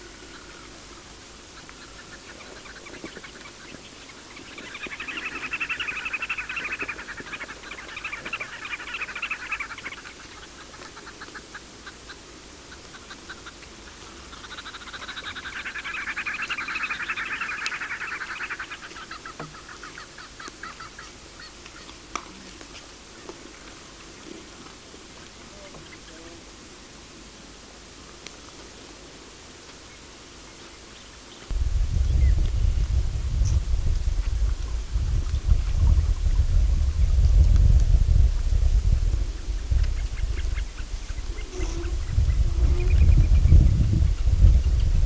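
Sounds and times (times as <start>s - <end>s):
harsh chattering animal calls: 1.6s - 21.9s.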